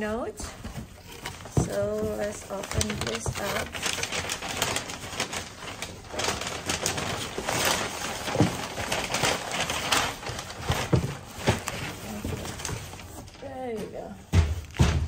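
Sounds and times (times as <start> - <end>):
plastic bag crinkling: 0.4 - 15.0
soft handling thumps: 0.5 - 3.6.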